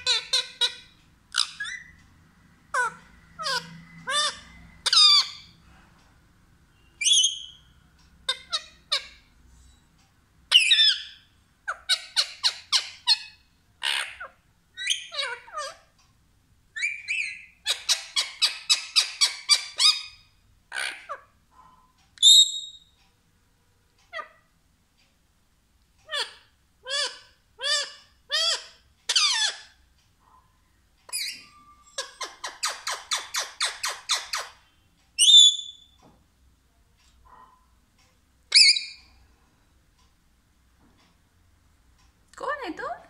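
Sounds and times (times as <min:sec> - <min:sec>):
parakeet squawking and chattering: 0:00.0 - 0:05.7, 0:06.8 - 0:09.4, 0:10.4 - 0:16.0, 0:16.7 - 0:23.0, 0:24.0 - 0:24.6, 0:26.0 - 0:30.4, 0:31.1 - 0:36.0, 0:38.4 - 0:39.3.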